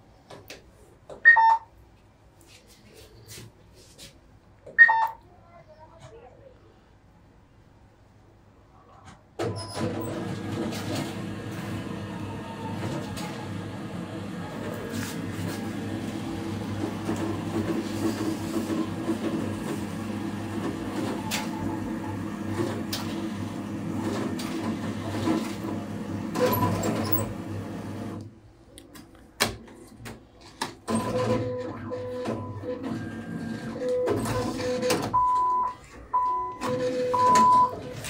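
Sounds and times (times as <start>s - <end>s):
cash machine mechanical hum: 9.4s - 28.8s, 29.5s - 38.0s.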